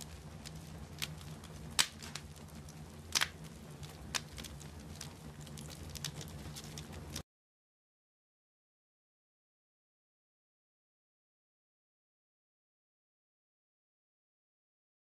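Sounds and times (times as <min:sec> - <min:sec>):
low steady hum: 0:00.0 - 0:07.2
wood fire crackling and popping: 0:00.0 - 0:07.2.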